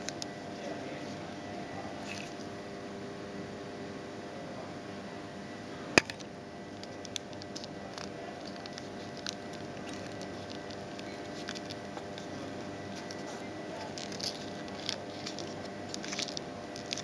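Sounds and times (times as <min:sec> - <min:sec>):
background hum: 0:00.0 - 0:17.0
paper being folded and creased: 0:06.7 - 0:17.0.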